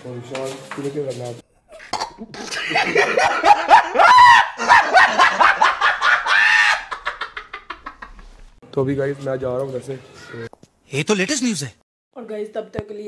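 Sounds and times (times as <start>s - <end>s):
man yelling excitedly: 10.9s - 11.8s.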